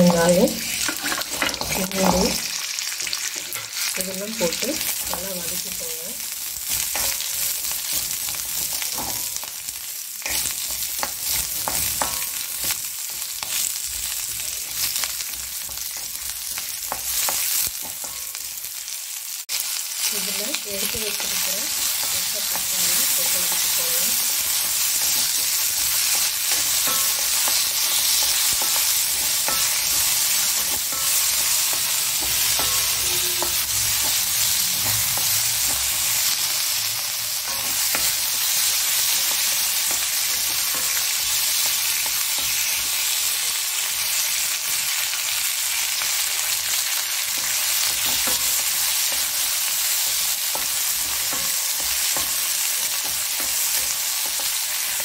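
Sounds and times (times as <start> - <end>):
vegetables sizzling in oil: 0.0 - 55.0
spatula scraping a pan: 0.6 - 2.3, 21.1 - 36.4.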